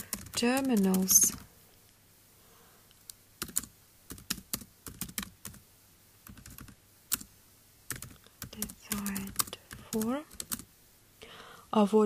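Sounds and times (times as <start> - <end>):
computer keyboard typing: 0.0 - 1.5, 3.4 - 5.6, 6.2 - 7.3, 7.9 - 10.7.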